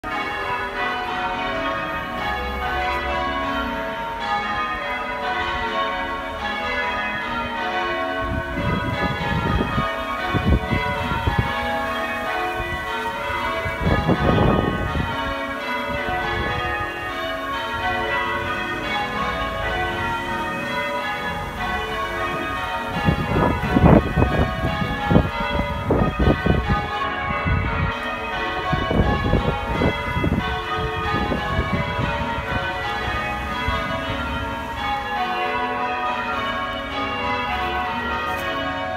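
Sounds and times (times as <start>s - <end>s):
church bells ringing: 0.0s - 38.9s
wind rumble on microphone: 8.2s - 16.9s, 22.3s - 34.8s.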